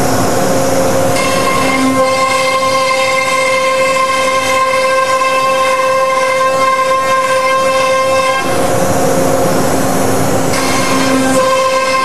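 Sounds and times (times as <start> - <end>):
router spindle high whine: 0.0 - 12.0
router bit cutting sheet: 10.5 - 12.0.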